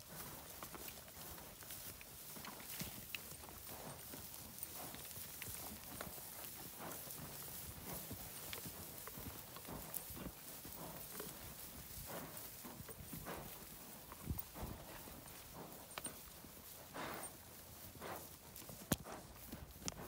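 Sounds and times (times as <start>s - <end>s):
horse hoofbeats in dry grass: 0.0s - 20.0s.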